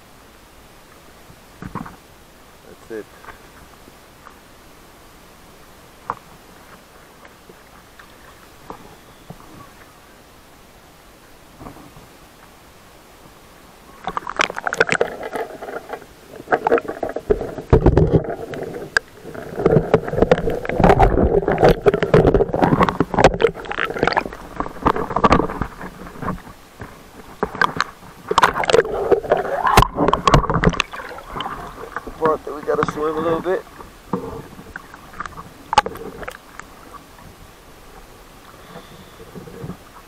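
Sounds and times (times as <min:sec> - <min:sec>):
water sloshing and splashing: 0:06.0 - 0:10.0, 0:13.9 - 0:40.0.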